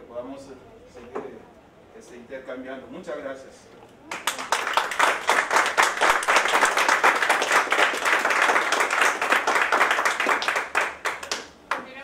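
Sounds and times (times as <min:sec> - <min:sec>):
audience applauding: 0:04.1 - 0:11.5.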